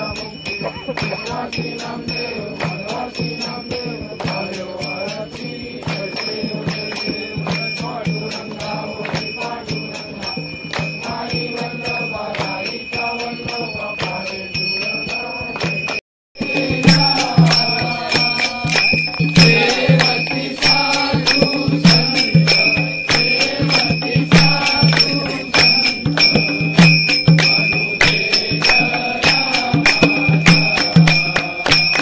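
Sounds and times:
bells jingling and ringing: 0.0s - 32.0s
steady rhythmic beat: 0.0s - 32.0s
devotional music: 16.4s - 32.0s.

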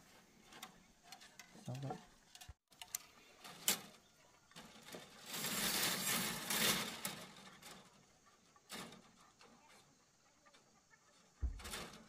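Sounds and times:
scraping and rustling: 0.0s - 12.0s.

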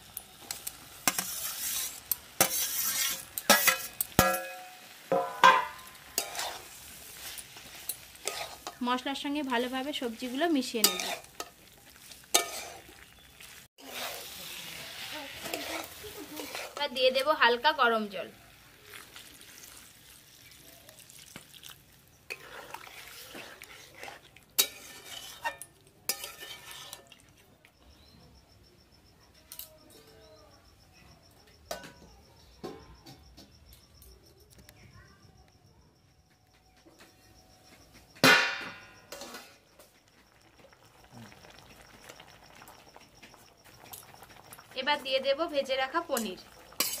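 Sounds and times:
spatula scraping metal pan: 0.5s - 12.9s, 13.8s - 17.0s, 22.3s - 27.2s, 46.1s - 47.0s
spatula clinking against metal: 0.6s - 12.9s, 22.3s - 27.2s, 45.9s - 47.0s.

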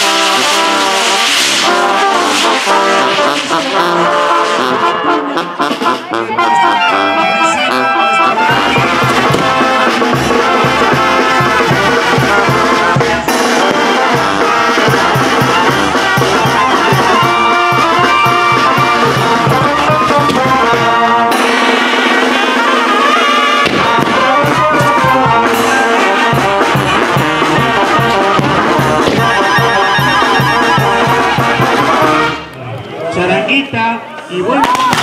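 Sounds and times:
brass band horns: 0.0s - 32.8s
steady drum beat: 8.4s - 32.3s.

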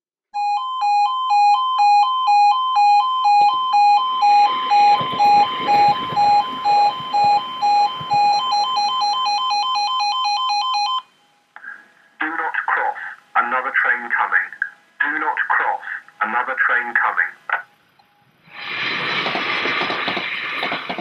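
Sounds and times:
crossing alarm two-tone warble: 0.4s - 11.3s
train rumbling past: 4.4s - 8.3s, 18.6s - 21.0s.

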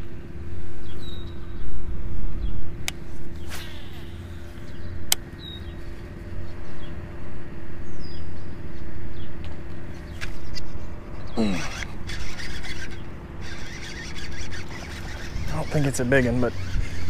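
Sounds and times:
faint hum: 0.0s - 17.0s
bird chirps: 3.4s - 5.8s.

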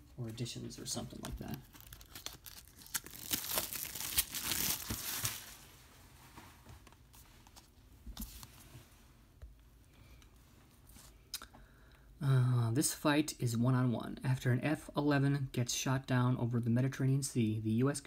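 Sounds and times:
plastic wrap crinkling and tearing: 0.9s - 5.7s.

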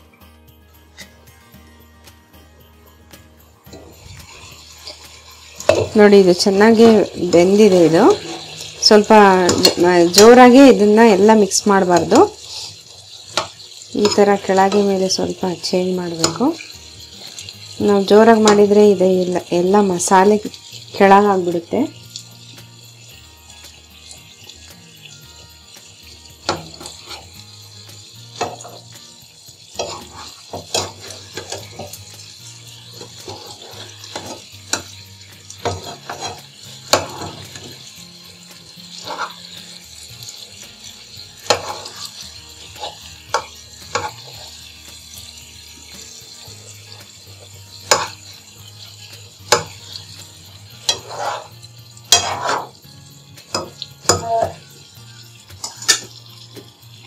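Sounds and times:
food sizzling in oil: 0.0s - 57.0s
utensil scraping pan: 3.7s - 10.7s, 29.8s - 32.0s, 32.9s - 34.9s, 35.6s - 37.9s, 38.9s - 39.6s, 41.4s - 44.6s, 47.8s - 48.2s, 50.8s - 52.8s.

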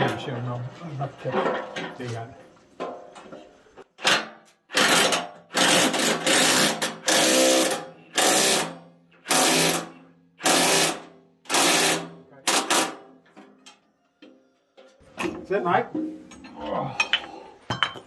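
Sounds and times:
power drill bursts: 4.7s - 12.9s.

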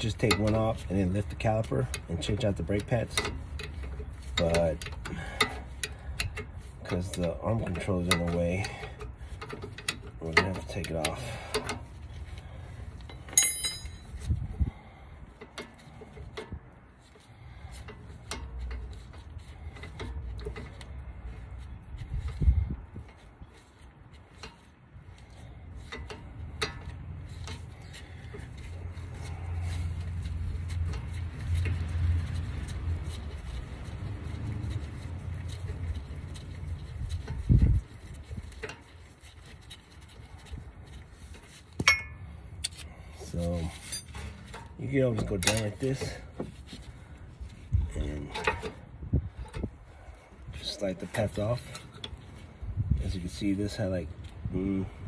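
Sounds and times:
small metal clicks: 0.0s - 14.3s
ringing metal clink: 13.2s - 14.2s, 41.8s - 42.2s.

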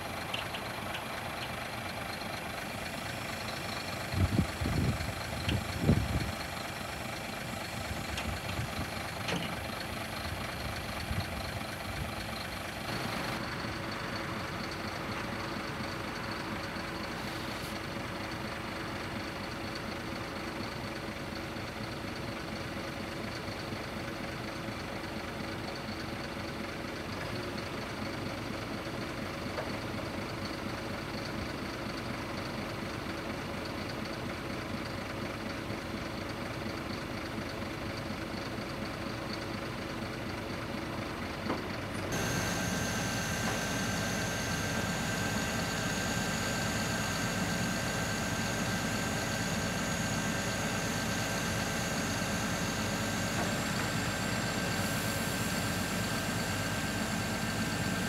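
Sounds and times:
hydraulic crane hum: 0.0s - 19.5s, 40.7s - 58.0s
truck engine running: 0.0s - 58.0s.

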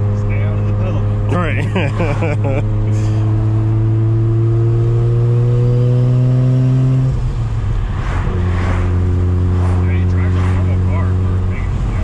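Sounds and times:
rotary engine droning in cabin: 0.0s - 12.0s
rush of noise: 7.2s - 12.0s.

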